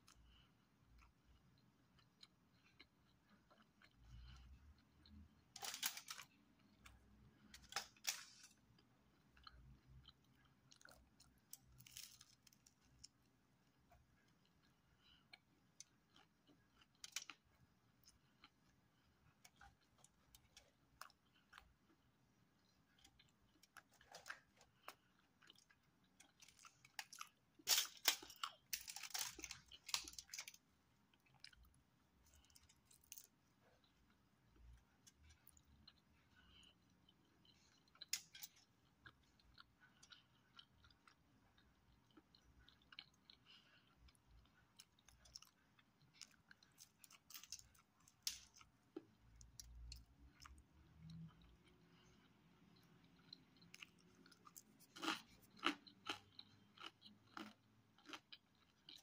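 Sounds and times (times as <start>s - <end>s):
soft chewing: 0.0s - 59.0s
pizza crust crunches: 2.0s - 13.3s, 23.0s - 33.4s, 42.1s - 51.3s.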